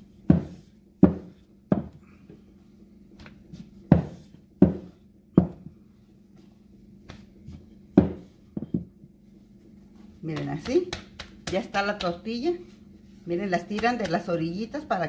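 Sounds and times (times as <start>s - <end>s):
rolling pin knocking on stone: 0.3s - 2.0s, 3.9s - 5.7s, 8.0s - 8.9s.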